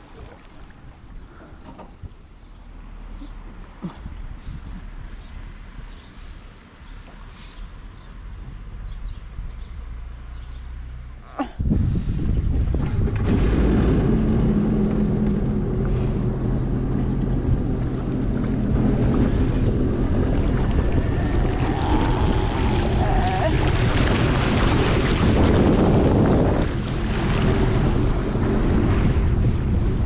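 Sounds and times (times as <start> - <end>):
wind on microphone: 3.8 - 5.3, 11.5 - 30.0
watercraft engine drone: 11.4 - 30.0
rushing water: 13.1 - 30.0.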